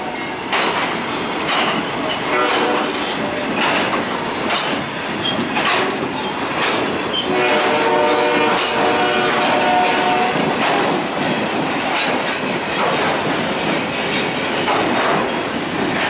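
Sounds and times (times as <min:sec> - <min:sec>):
freight train wheels clicking: 0:00.0 - 0:16.0
train rumble: 0:00.0 - 0:16.0
train horn chord: 0:02.3 - 0:03.0, 0:07.3 - 0:10.4.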